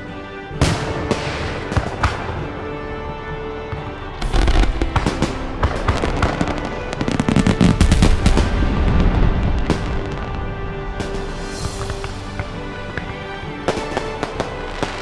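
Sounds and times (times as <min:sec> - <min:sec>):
background music with held tones: 0:00.0 - 0:15.0
fireworks crackling and popping: 0:04.2 - 0:15.0.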